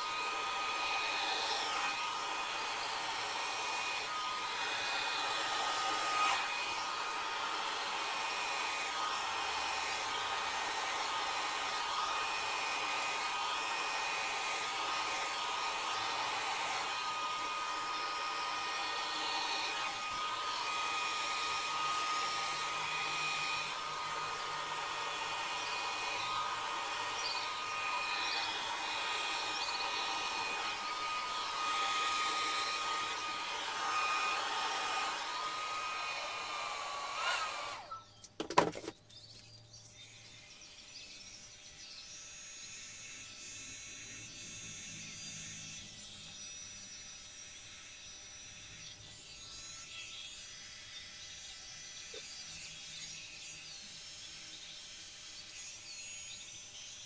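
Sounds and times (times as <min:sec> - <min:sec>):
hair dryer running: 0:00.0 - 0:38.0, 0:51.4 - 0:57.0.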